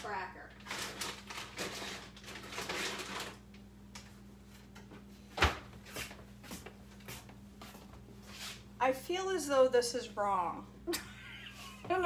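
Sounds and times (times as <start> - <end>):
packages and containers clattering: 0.6 - 3.5.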